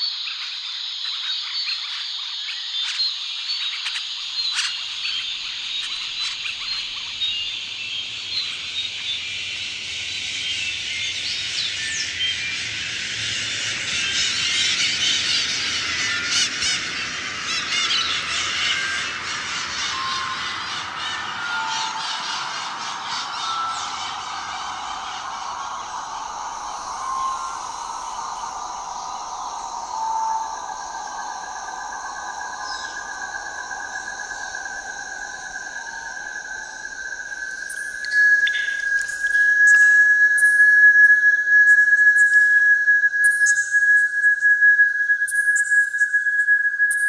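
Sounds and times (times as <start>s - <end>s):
chorus of chirps and peeps: 0.2s - 27.8s.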